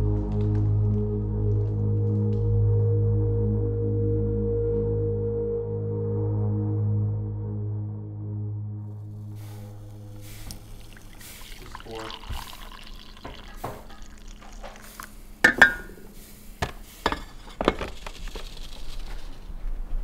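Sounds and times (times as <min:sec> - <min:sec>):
coffee pouring into mug: 0:09.0 - 0:19.4
glass and ceramic clinks: 0:10.9 - 0:14.6, 0:15.4 - 0:16.0.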